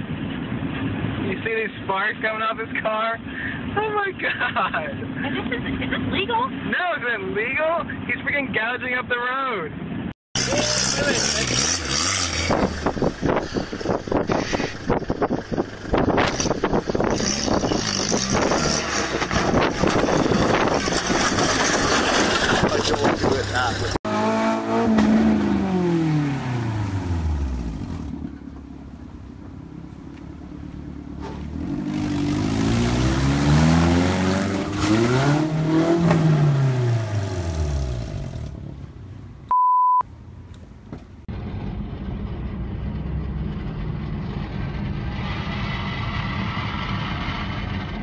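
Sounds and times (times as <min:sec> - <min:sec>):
road and tyre noise: 0:00.0 - 0:48.0
car engine revving: 0:10.4 - 0:29.1, 0:29.7 - 0:39.0
short steady beep: 0:39.5 - 0:40.1.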